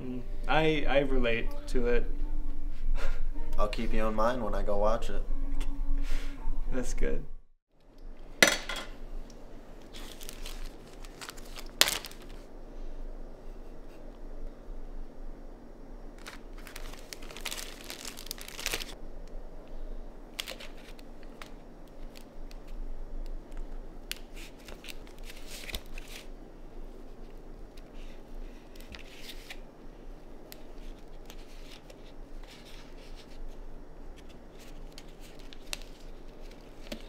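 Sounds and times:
plastic bag crinkling: 9.8 - 12.5, 16.2 - 19.0.

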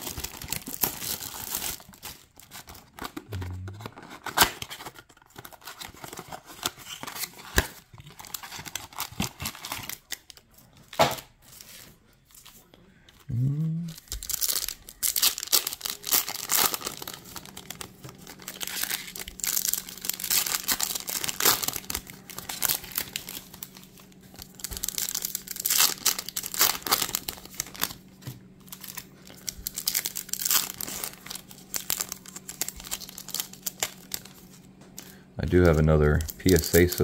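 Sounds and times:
foil wrappers crinkling and ripping: 0.0 - 37.0
faint low hum: 2.6 - 4.7, 9.9 - 37.0.

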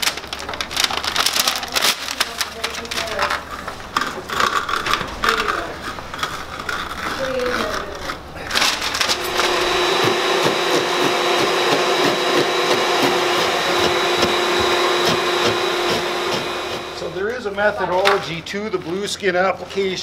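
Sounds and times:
motor-like hum: 2.9 - 17.4.

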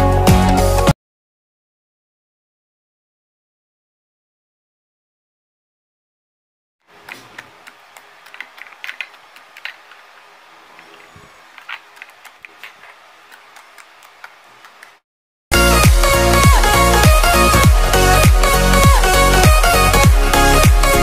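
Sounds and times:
electronic dance music: 15.5 - 21.0.

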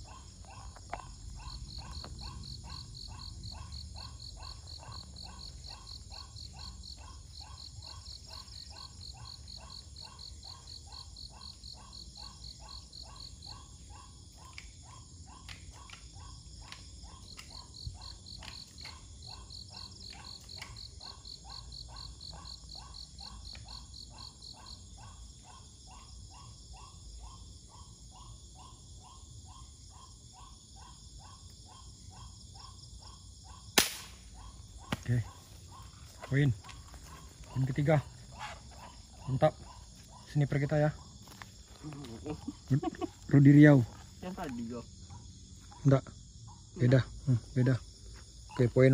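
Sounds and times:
insects calling: 0.0 - 48.9
air rifle shot: 33.8 - 34.2.

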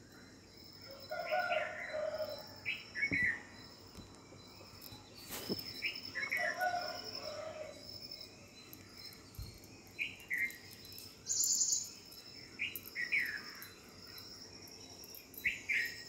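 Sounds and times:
birds calling: 1.2 - 7.8
high insect buzz: 1.2 - 16.0.

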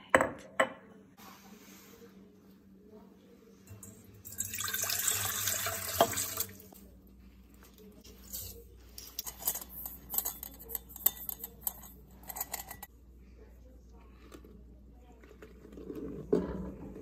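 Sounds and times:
water pouring into metal bowl: 3.8 - 6.7
spoon clicking and tapping: 9.0 - 12.9.

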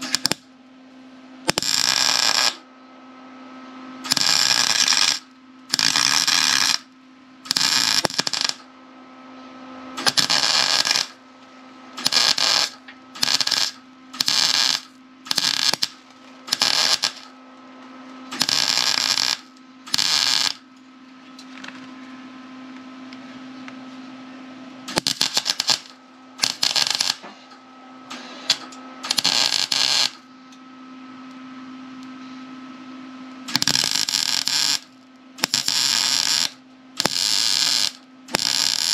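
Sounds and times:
welder crackling bursts: 0.0 - 0.5, 1.5 - 2.6, 4.0 - 8.7, 10.0 - 11.2, 12.0 - 17.4, 18.3 - 20.6, 24.9 - 27.2, 28.5 - 30.2, 33.5 - 38.9
steady low hum: 0.0 - 38.9.

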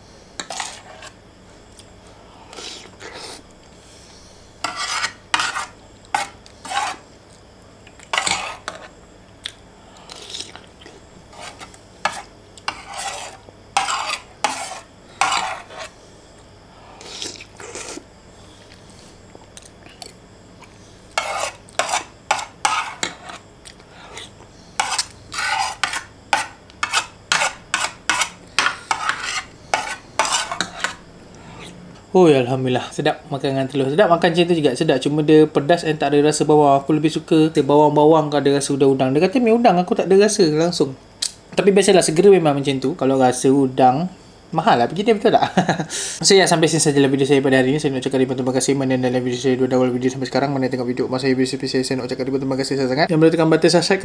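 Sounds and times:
cutlery scraping ceramic plate: 0.4 - 1.2, 4.6 - 7.0, 8.1 - 8.9, 11.3 - 16.0, 21.2 - 23.4, 24.0 - 31.0.

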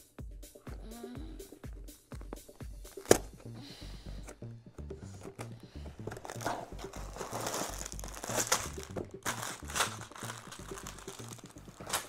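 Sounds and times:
quiet background music: 0.0 - 12.0
plastic bags crinkling: 5.8 - 12.0.

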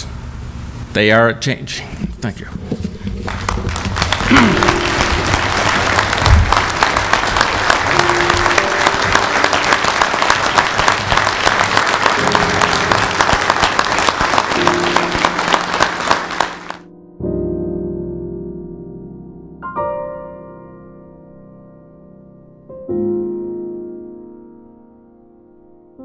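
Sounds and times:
audience clapping: 2.8 - 16.9.

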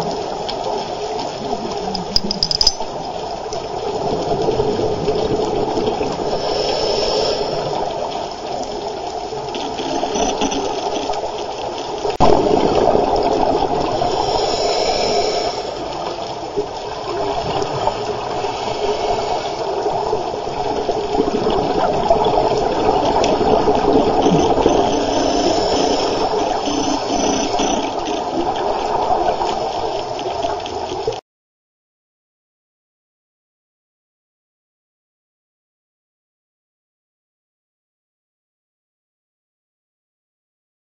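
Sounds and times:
underwater rushing and gurgling: 0.0 - 31.2
scuba exhalation bubbles hissing: 12.2 - 30.2.

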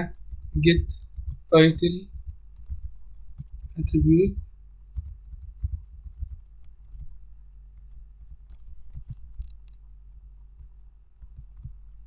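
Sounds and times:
steady low hum: 0.0 - 12.0
computer keys clicking: 0.1 - 7.1, 7.8 - 9.8.

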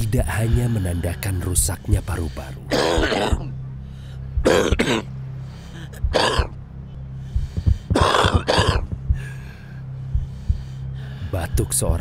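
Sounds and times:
low steady drone: 0.0 - 12.0
person coughing: 2.7 - 3.5, 4.4 - 5.1, 6.2 - 6.5, 7.9 - 8.9.

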